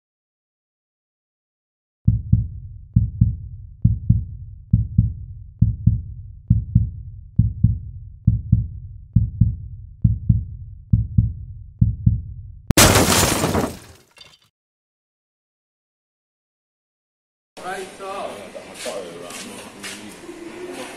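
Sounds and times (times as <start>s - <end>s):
deep bass thumps: 2.1s - 12.8s
sudden loud crash: 12.8s - 13.9s.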